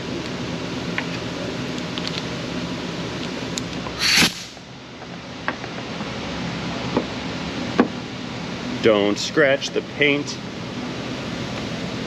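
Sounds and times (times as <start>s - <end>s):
compressed air hiss: 4.0s - 4.6s.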